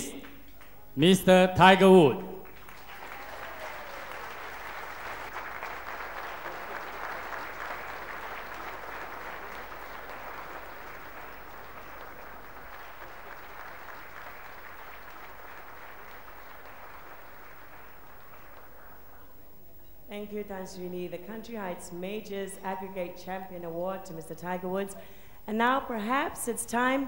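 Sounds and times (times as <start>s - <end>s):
audience applauding: 1.9s - 19.6s.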